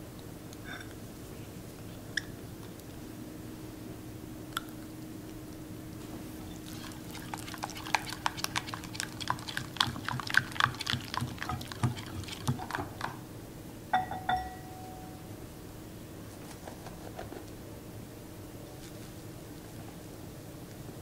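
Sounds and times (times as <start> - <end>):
whisk clicking in a bowl: 6.7 - 13.2
sharp ringing taps: 13.9 - 15.2.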